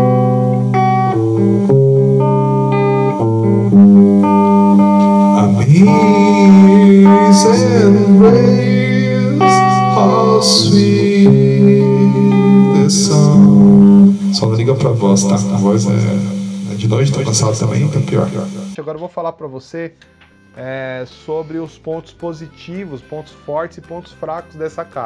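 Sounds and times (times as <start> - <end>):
electric guitar chords: 0.0 - 18.8
man singing through speaker: 5.4 - 18.8.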